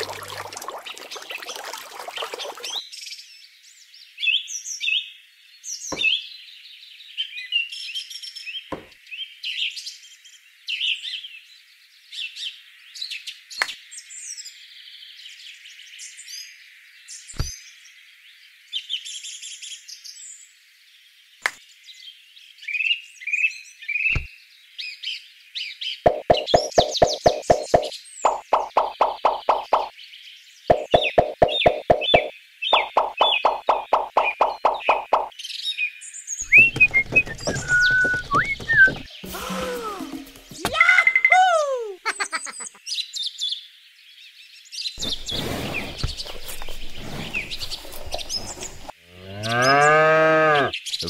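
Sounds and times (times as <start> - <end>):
small birds chirping: 0.0 - 2.9, 25.9 - 39.2, 42.2 - 49.9
sharp clicks: 26.1 - 29.9, 30.7 - 35.3.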